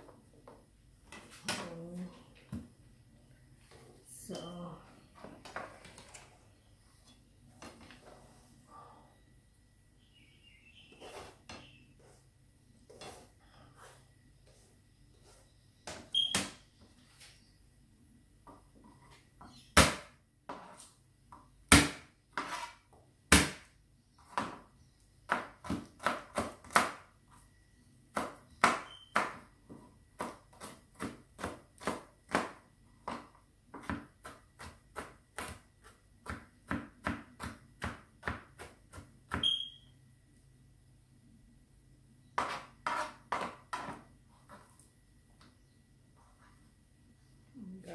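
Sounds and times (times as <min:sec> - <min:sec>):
knife chopping on plastic board: 0:25.3 - 0:27.1, 0:30.2 - 0:39.5, 0:42.4 - 0:44.0.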